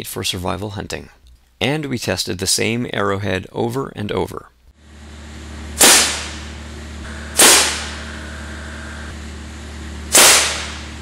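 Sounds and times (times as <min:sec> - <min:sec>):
steady low hum: 0:04.6 - 0:11.0
compressed-air gun firing: 0:05.8 - 0:06.5, 0:07.3 - 0:08.1, 0:10.1 - 0:11.0.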